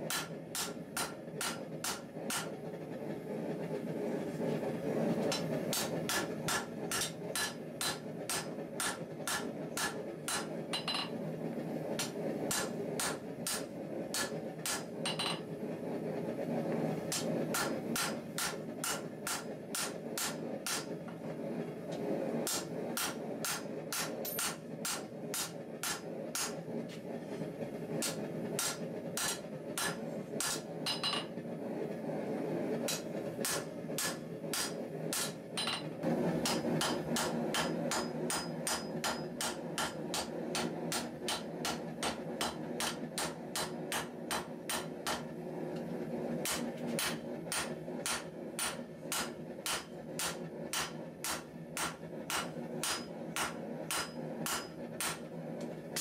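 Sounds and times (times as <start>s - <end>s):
hammer striking steel on anvil: 0.0s - 2.6s, 5.2s - 11.2s, 12.0s - 15.5s, 17.1s - 20.9s, 22.5s - 26.6s, 28.0s - 31.4s, 32.9s - 45.3s, 46.4s - 55.3s.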